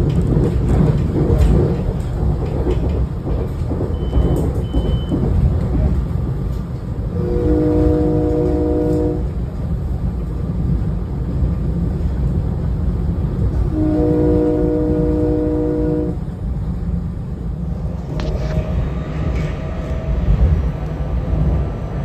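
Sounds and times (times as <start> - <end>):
train rumble and rail noise: 0.0 - 22.0
train horn chord: 7.2 - 9.3, 13.7 - 16.2.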